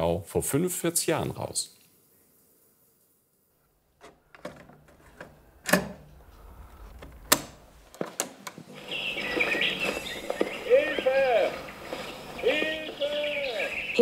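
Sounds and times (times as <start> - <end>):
plastic clicks and clunks: 4.0 - 6.0, 6.8 - 8.7
cassette tape playing: 4.0 - 14.0.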